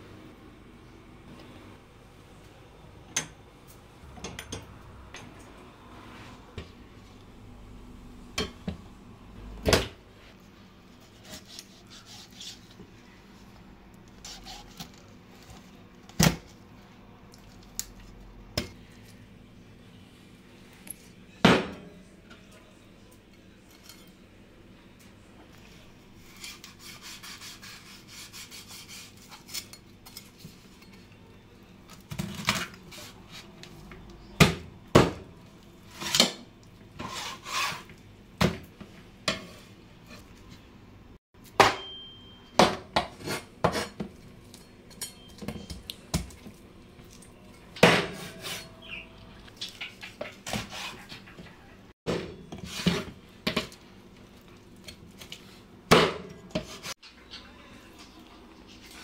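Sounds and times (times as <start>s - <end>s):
knife cutting and scraping: 11.0s - 12.7s, 14.2s - 15.1s, 26.2s - 30.9s, 37.0s - 37.9s, 49.6s - 51.3s.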